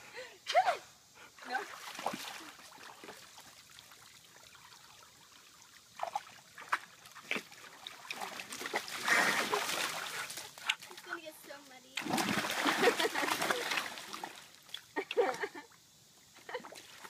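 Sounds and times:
puppy splashing water: 0:01.5 - 0:11.3, 0:11.9 - 0:15.4.

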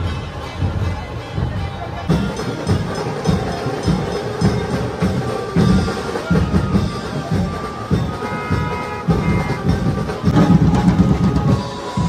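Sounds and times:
band drums beating: 0:00.0 - 0:12.0.

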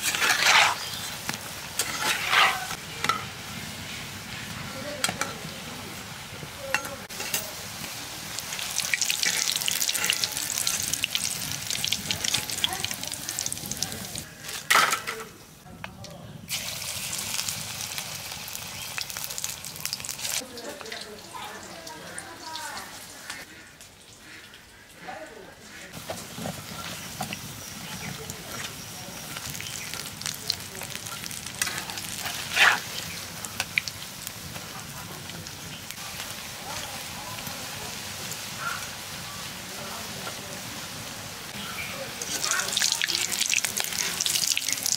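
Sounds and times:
metal spatula scraping a pan: 0:00.0 - 0:05.4, 0:06.7 - 0:07.6, 0:09.2 - 0:11.0, 0:30.8 - 0:33.7
oil sizzling deep-frying: 0:00.0 - 0:15.6, 0:16.4 - 0:25.0, 0:25.7 - 0:44.9.

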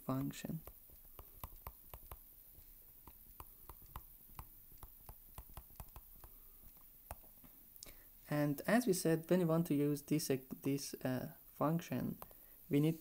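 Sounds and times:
stylus tapping on tablet screen: 0:00.0 - 0:02.3, 0:03.0 - 0:07.4, 0:12.2 - 0:12.4.

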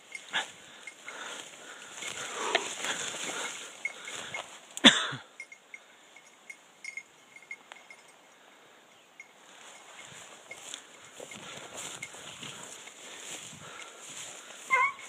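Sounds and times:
brush rustling and snapping: 0:01.8 - 0:04.9.

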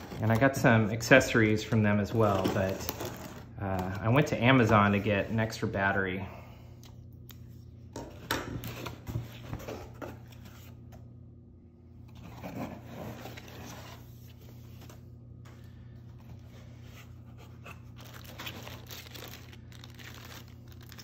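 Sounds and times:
steady low hum: 0:00.0 - 0:21.0
items rustling in a box: 0:16.1 - 0:21.0
plastic bag crinkling: 0:17.9 - 0:21.0.

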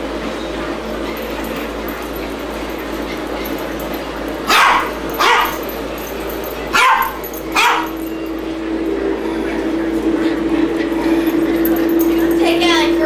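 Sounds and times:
small dog barking: 0:04.5 - 0:05.7, 0:06.7 - 0:08.0.

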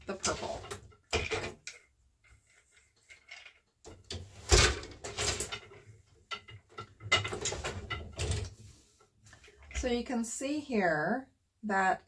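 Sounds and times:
wooden loom knocking and scraping: 0:00.0 - 0:08.6.

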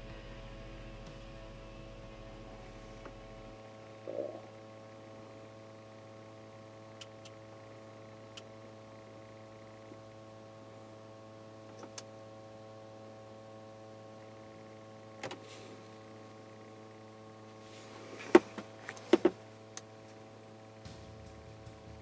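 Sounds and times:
low hum: 0:00.0 - 0:22.0.

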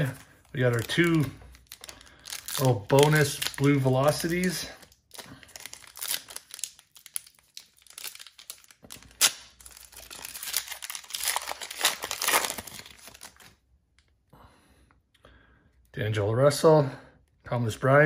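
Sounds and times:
plastic wrapper crinkling: 0:00.0 - 0:13.6
plastic wrapper ripping: 0:00.0 - 0:13.6.

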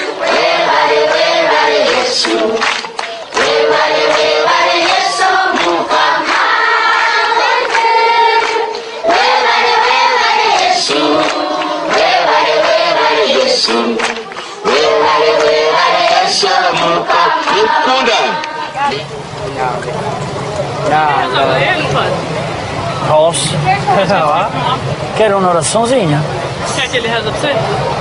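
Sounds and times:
children singing in chorus: 0:00.0 - 0:18.9.

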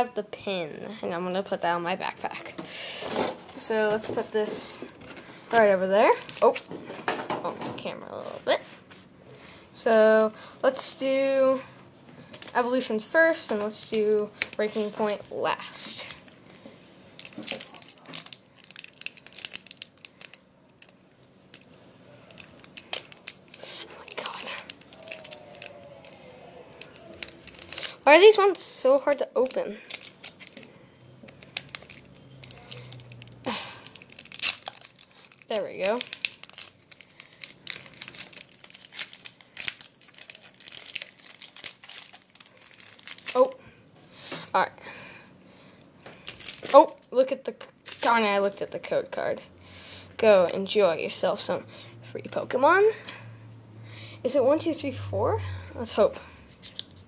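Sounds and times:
foil wrapper crinkling: 0:12.3 - 0:43.6, 0:46.1 - 0:48.6.

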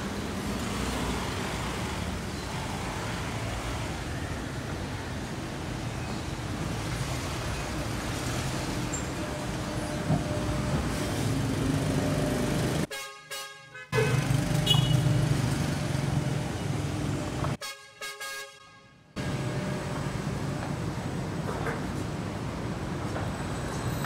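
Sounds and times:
rumble of passing traffic: 0:00.0 - 0:17.6, 0:19.0 - 0:24.0
vehicle horn: 0:12.9 - 0:15.1, 0:17.6 - 0:19.0.

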